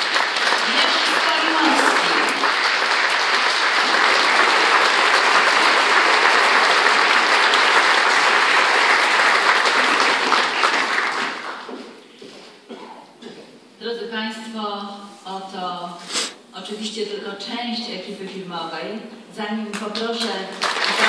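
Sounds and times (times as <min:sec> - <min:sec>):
audience applauding: 0:00.0 - 0:11.9, 0:20.5 - 0:21.0.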